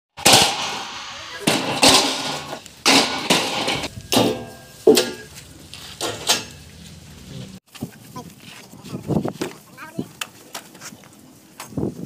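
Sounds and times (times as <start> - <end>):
metal tubes knocking and clanking: 0.2 - 6.7.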